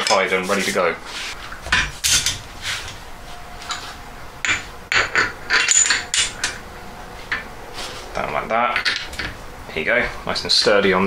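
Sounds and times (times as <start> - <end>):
metal parts clinking and scraping: 4.4 - 6.6.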